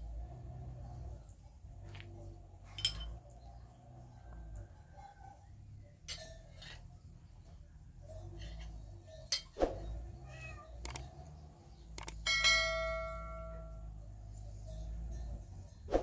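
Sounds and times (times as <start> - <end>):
dishes and cups clinking: 2.7 - 3.2
mouse click: 10.8 - 11.0, 12.0 - 12.2
bell ding: 12.3 - 14.0.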